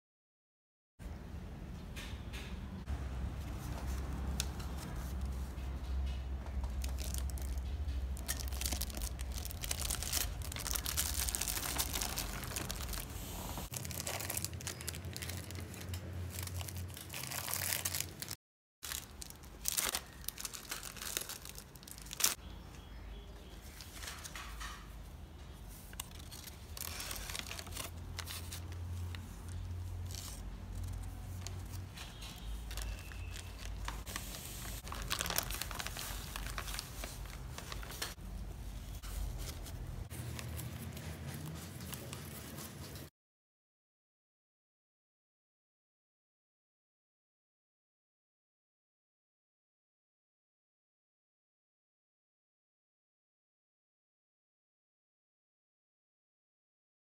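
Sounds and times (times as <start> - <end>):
candy wrappers rustling: 6.7 - 22.4, 25.6 - 43.1
paper bag crinkling: 6.7 - 22.4, 25.8 - 43.1.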